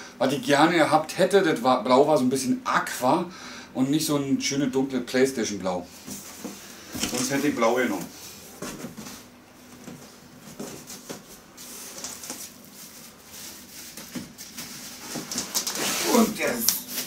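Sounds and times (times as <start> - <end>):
plastic and cardboard crinkling: 8.6 - 17.0.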